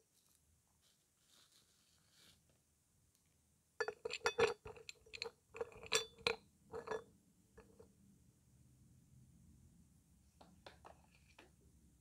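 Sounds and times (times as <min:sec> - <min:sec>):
clay chunks clinking on a plate: 0:03.8 - 0:07.8.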